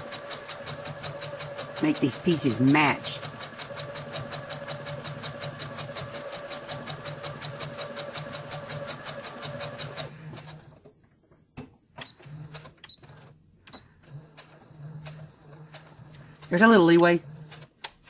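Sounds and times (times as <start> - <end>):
sewing machine stitching: 0.0 - 10.9, 14.0 - 17.9.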